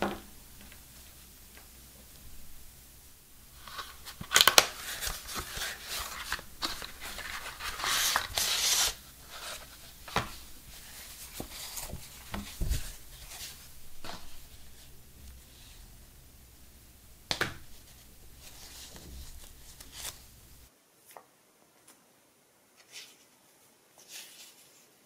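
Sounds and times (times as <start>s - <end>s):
card and paper rustling: 3.5s - 14.9s, 17.6s - 20.3s.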